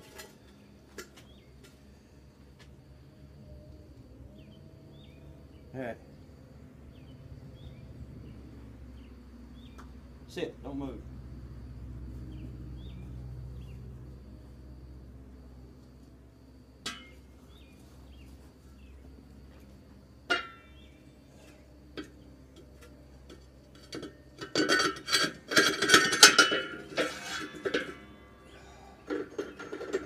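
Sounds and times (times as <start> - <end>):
rapid metallic clatter: 23.7 - 30.0
metal blades clanking: 24.4 - 30.0.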